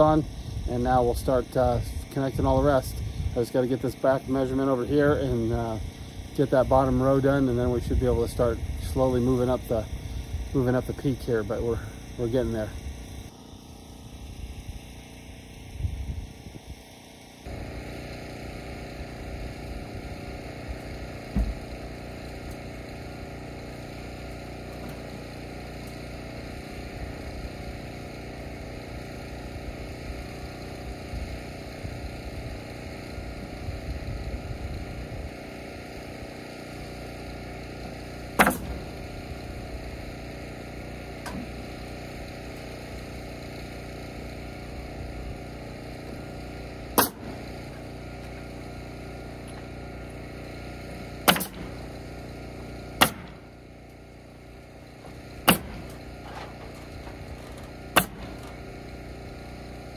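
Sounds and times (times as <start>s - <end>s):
engine hum: 0.0s - 59.9s
nail gun firing: 37.9s - 39.1s, 46.8s - 48.3s, 50.8s - 53.8s, 55.1s - 59.0s.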